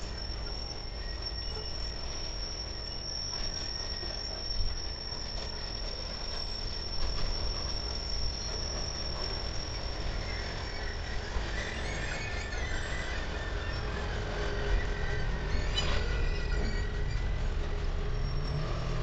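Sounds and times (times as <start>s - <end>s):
freight train rumbling: 0.0s - 19.0s
high-pitched wheel squeal: 0.0s - 19.0s.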